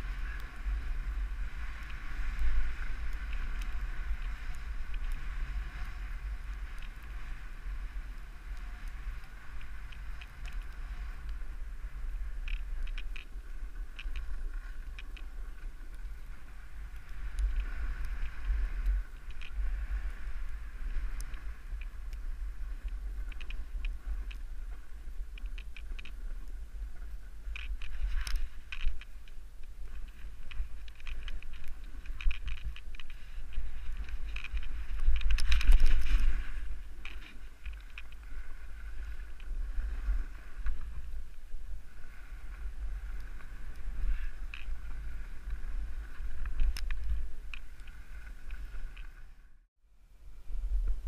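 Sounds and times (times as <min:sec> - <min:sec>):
hiss of sliding on snow: 0:00.0 - 0:12.3, 0:13.3 - 0:25.3, 0:41.8 - 0:46.4
sharp clicks and crackles: 0:00.0 - 0:49.3
wind rumbling on microphone: 0:00.0 - 0:51.0.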